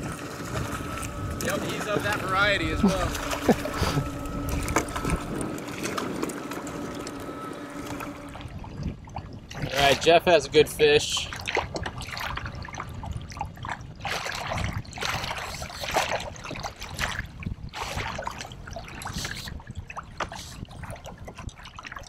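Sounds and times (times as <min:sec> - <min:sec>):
low uneven rumble: 0:00.0 - 0:13.9
water splashing against kayak hull: 0:00.0 - 0:22.0.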